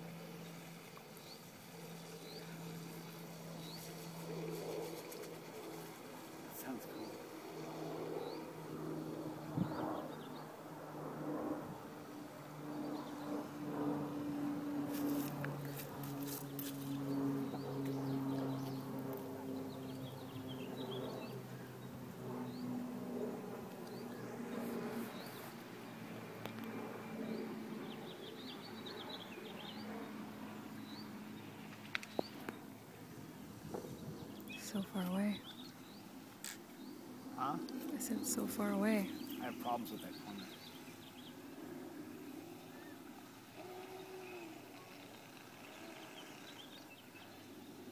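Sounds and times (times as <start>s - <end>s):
distant model boat motor hum: 0.0s - 10.6s, 11.6s - 47.9s
small birds chirping: 0.0s - 10.7s, 12.4s - 13.5s, 14.8s - 22.8s, 23.5s - 47.9s.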